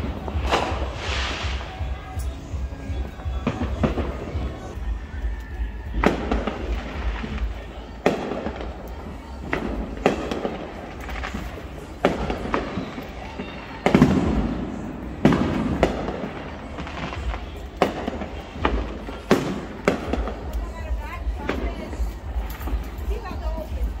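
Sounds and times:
fireworks banging: 0.0 - 24.0.

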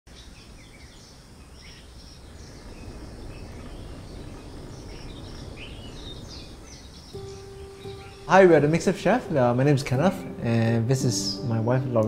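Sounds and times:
birds chirping: 0.1 - 12.0
low background rumble: 0.6 - 9.8.

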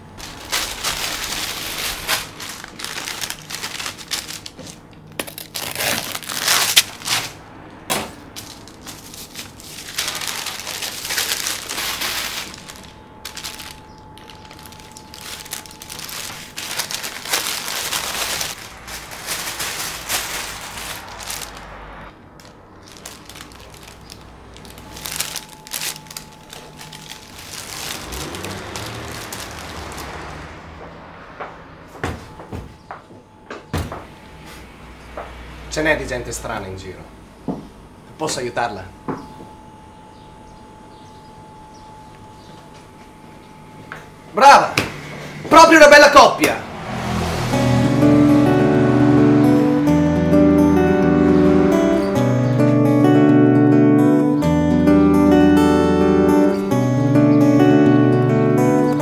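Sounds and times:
crinkling and crackling: 0.0 - 7.4, 8.1 - 32.4
faint high hum: 36.6 - 44.8.

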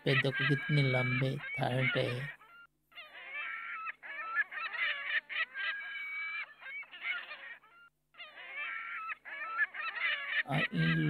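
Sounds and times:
flamingos honking: 0.1 - 2.4.

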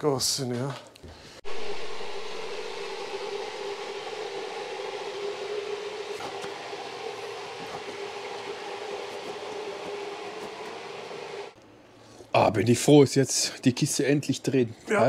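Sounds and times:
machine humming and whirring: 1.4 - 11.7.

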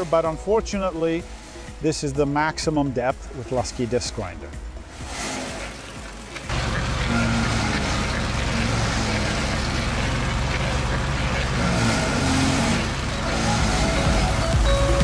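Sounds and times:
stump grinder engines under load: 0.0 - 15.0
cutters grinding into stumps: 3.0 - 14.6.

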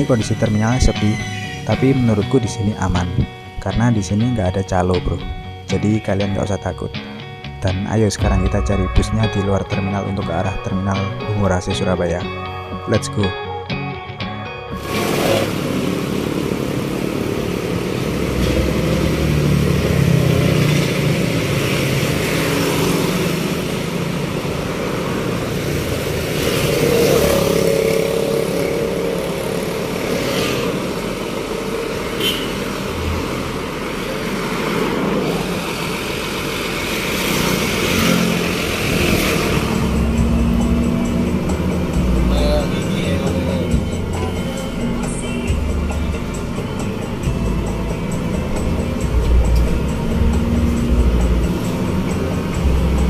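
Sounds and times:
bus engine: 0.0 - 53.0
street traffic noise: 0.0 - 53.0
motorbike engine: 14.8 - 53.0.

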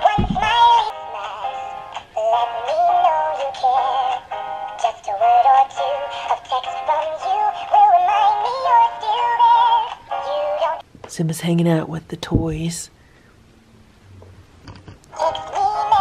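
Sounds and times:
high-pitched electronic toy voice singing: 0.0 - 4.2, 4.8 - 10.8, 15.1 - 16.0.

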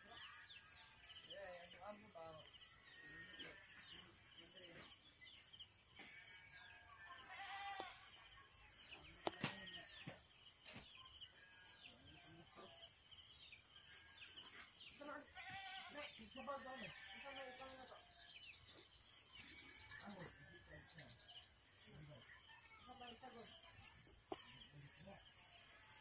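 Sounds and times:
pulsing insect chorus: 0.0 - 26.0.

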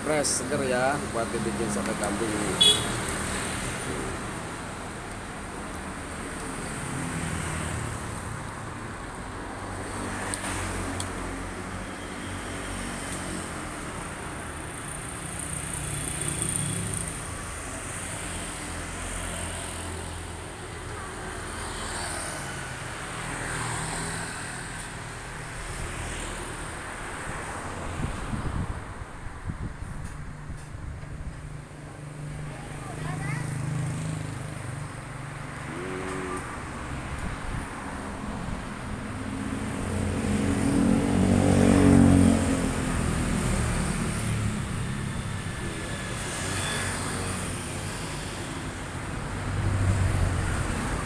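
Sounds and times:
vehicle engine passing: 39.5 - 45.1.

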